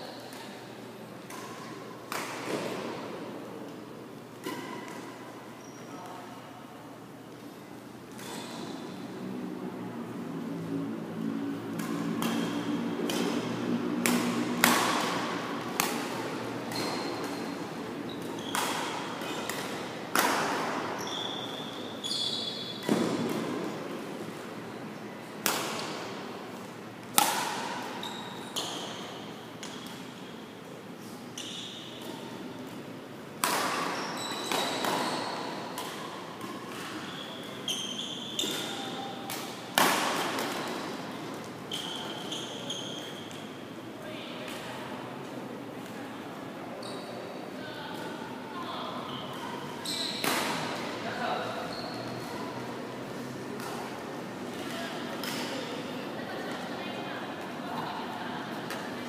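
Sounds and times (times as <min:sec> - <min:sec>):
sneakers squeaking on court floor: 0:05.6 - 0:06.1, 0:08.2 - 0:09.0, 0:16.6 - 0:19.8, 0:20.6 - 0:23.4, 0:27.8 - 0:30.4, 0:31.3 - 0:32.4, 0:33.8 - 0:39.1, 0:41.7 - 0:43.6, 0:46.8 - 0:47.4, 0:49.0 - 0:50.7, 0:51.6 - 0:52.4
racket hitting shuttlecock: 0:11.7 - 0:21.0, 0:22.8 - 0:23.8, 0:25.4 - 0:26.2, 0:27.0 - 0:29.0, 0:31.4 - 0:42.0, 0:50.1 - 0:50.9.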